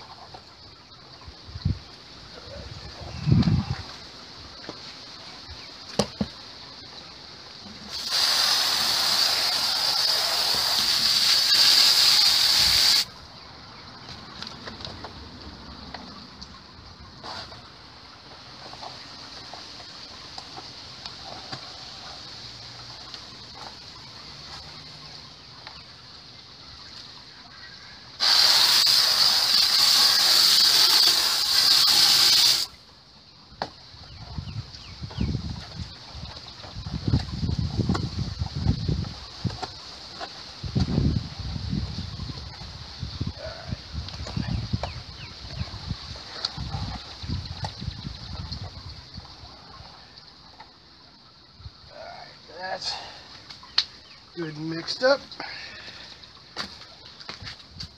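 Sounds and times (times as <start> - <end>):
hose nozzle spraying water: 7.9 - 13.1, 28.2 - 32.8.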